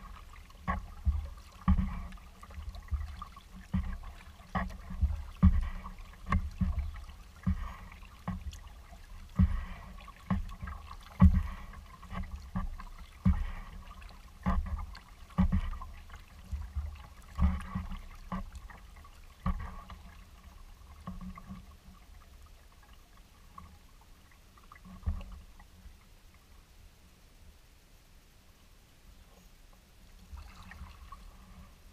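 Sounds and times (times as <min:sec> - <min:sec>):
paddle knocking kayak hull: 0:00.0 - 0:22.2
water dripping off paddle: 0:00.0 - 0:23.7.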